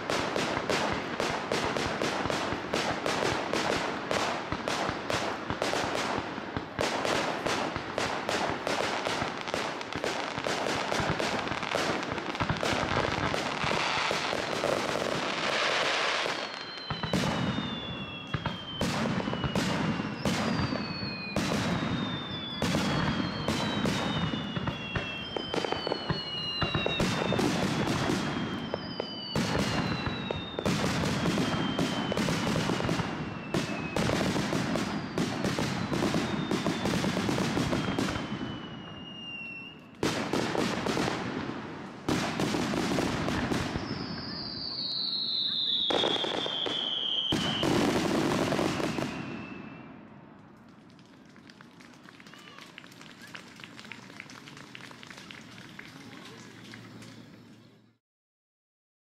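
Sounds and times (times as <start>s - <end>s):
firework bursts and crackling: 0.0s - 57.9s
firework whistles: 10.4s - 41.2s, 42.1s - 50.2s.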